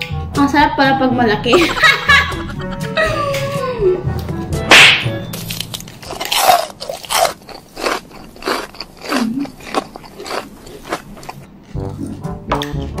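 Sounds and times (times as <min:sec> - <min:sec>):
biting into cucumber: 0:05.4 - 0:11.5
crunchy chewing: 0:05.5 - 0:12.2.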